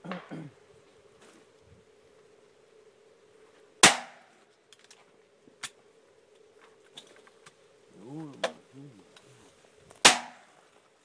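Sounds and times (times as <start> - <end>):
shotgun firing: 3.8 - 4.2, 10.0 - 10.4.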